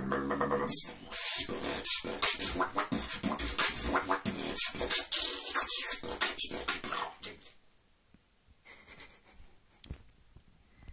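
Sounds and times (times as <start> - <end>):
beatboxing: 0.0 - 7.5.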